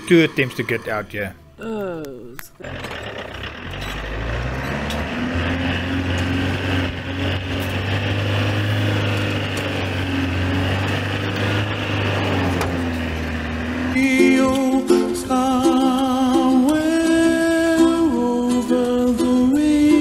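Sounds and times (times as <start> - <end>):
diesel engine running under load: 0.0 - 1.6, 2.4 - 20.0
music: 13.7 - 20.0.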